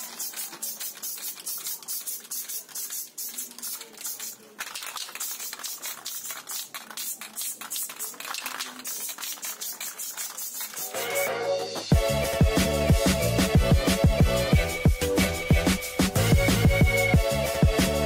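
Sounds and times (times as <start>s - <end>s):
spray hissing: 0.0s - 11.3s
spray can ball rattling: 0.0s - 12.0s, 12.6s - 17.2s.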